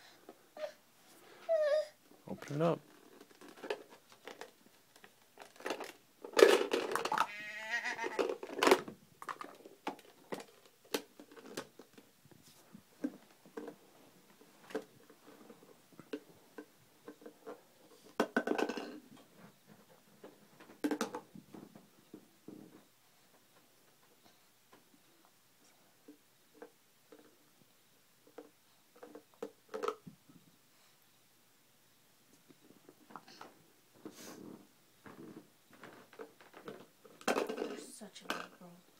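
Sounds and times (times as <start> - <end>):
baby's voice: 1.4 - 2.0
plastic toy shapes clattering: 2.6 - 7.4, 8.0 - 12.0, 18.2 - 19.0, 35.0 - 38.6.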